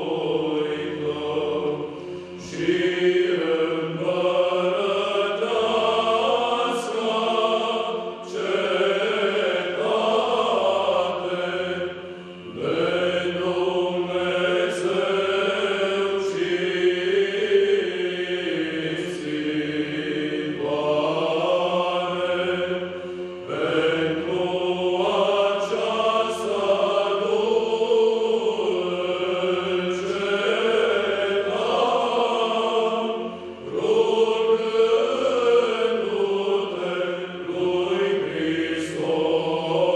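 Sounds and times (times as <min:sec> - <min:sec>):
low held vocal drone: 0:00.0 - 0:39.9
men's choir chanting: 0:00.0 - 0:39.9.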